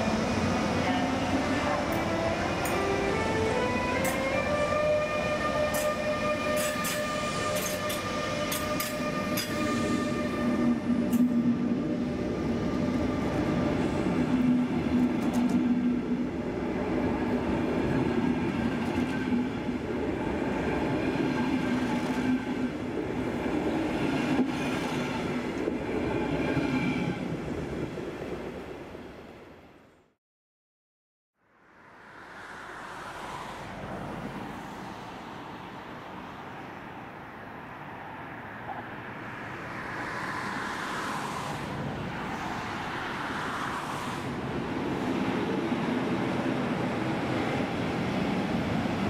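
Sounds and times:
electric locomotive whine: 0:00.0 - 0:28.0
train coaches rumbling by: 0:00.0 - 0:29.0, 0:38.6 - 0:49.0.

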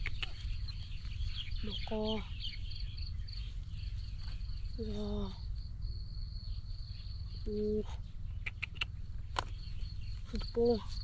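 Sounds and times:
sharp clicks: 0:00.0 - 0:00.4, 0:08.4 - 0:09.5
insects trilling: 0:00.0 - 0:11.0.

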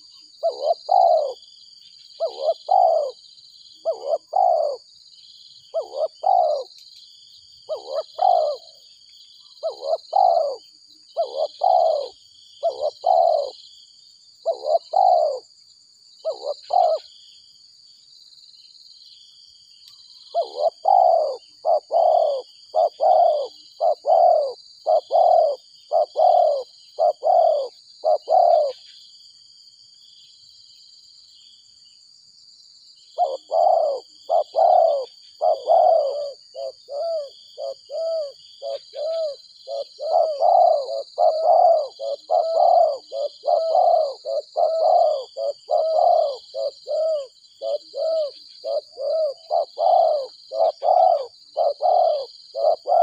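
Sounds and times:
dove cooing: 0:00.0 - 0:01.5, 0:02.2 - 0:03.2, 0:03.8 - 0:04.9, 0:05.7 - 0:06.8, 0:07.7 - 0:08.8, 0:09.4 - 0:13.6, 0:14.4 - 0:15.5, 0:16.2 - 0:17.1, 0:20.3 - 0:28.9, 0:33.2 - 0:53.0.

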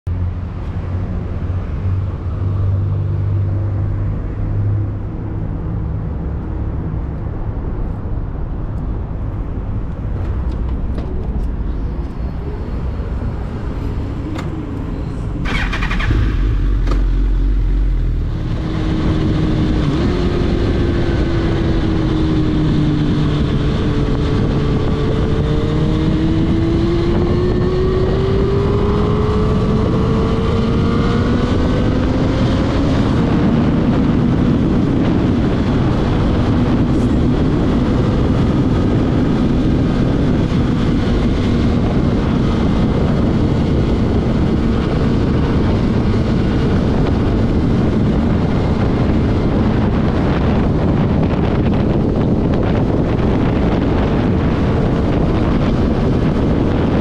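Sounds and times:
wind and road noise: 0:00.0 - 0:57.0
motorcycle engine running: 0:11.8 - 0:57.0.

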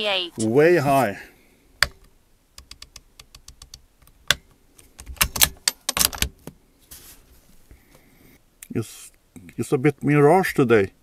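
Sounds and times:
rifle bolt clicks and rattles: 0:01.8 - 0:06.4.

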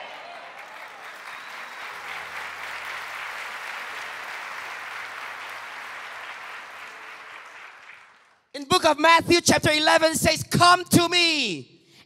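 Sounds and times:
congregation applauding: 0:00.0 - 0:08.5.

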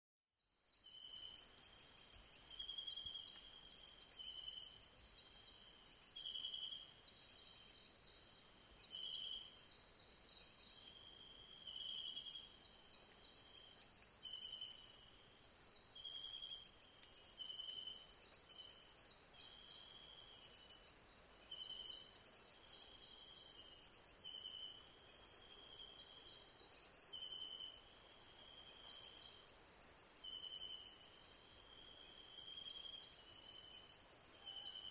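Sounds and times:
insect high steady trill: 0:00.5 - 0:34.9
lower insect chirps: 0:00.6 - 0:34.9.

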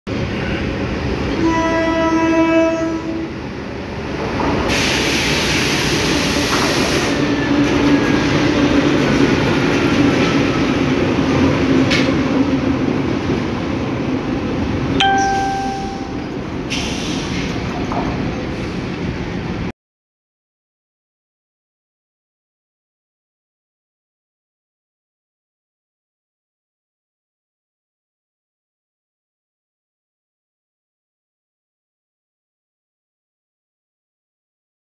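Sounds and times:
diesel locomotive engine drone: 0:00.1 - 0:19.7
locomotive horn: 0:01.3 - 0:03.3.

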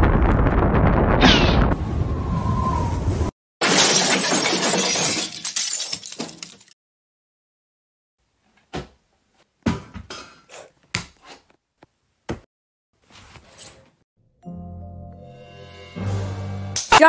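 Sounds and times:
music: 0:14.2 - 0:17.0.

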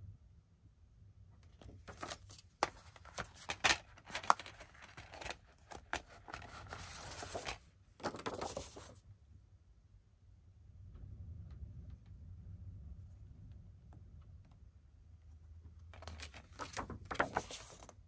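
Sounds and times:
packaging rustling and sliding: 0:01.9 - 0:09.0.

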